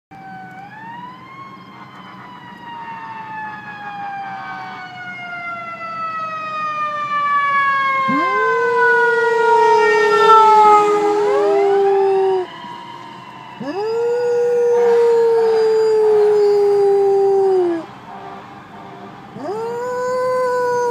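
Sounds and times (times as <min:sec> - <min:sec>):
fire truck siren wailing: 0:00.1 - 0:20.9
dog howling: 0:08.0 - 0:12.5, 0:13.6 - 0:17.9, 0:19.4 - 0:20.9.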